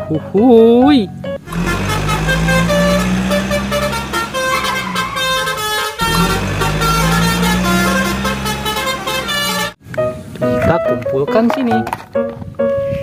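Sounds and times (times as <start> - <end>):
bus engine running: 1.4 - 9.8
bus horn toots: 1.4 - 9.8.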